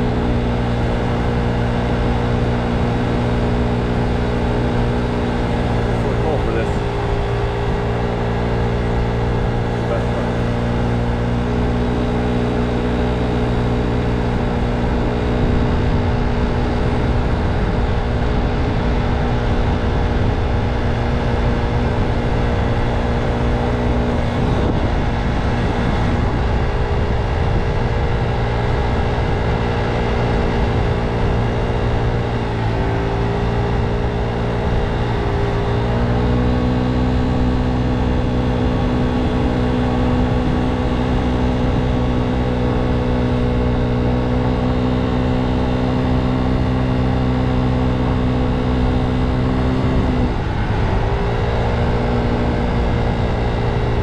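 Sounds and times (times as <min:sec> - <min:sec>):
scooter motor running: 0:00.0 - 0:54.0
wind rumbling on microphone: 0:14.3 - 0:54.0.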